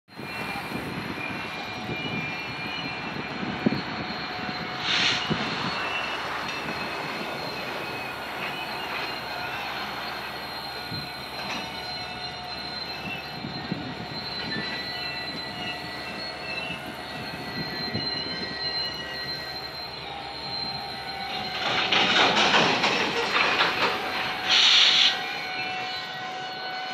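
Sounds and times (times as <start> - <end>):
freight train rumbling: 0.1 - 26.9
steel wheels squealing: 0.1 - 26.9
short hiss: 4.8 - 5.3, 24.5 - 25.2.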